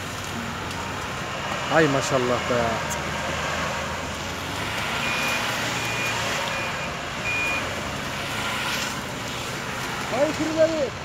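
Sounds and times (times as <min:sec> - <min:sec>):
short high beeps: 0:05.0 - 0:07.7.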